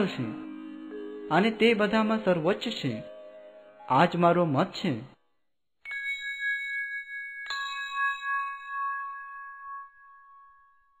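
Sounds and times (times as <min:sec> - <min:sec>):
bell ringing: 0:05.9 - 0:10.9.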